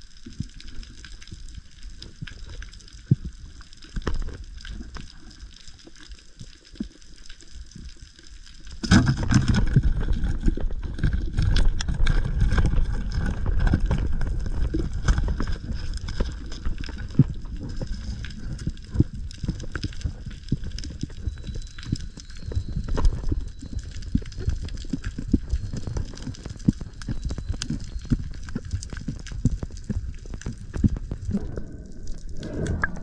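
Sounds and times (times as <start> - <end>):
churning water rumble underwater: 0.0 - 33.0.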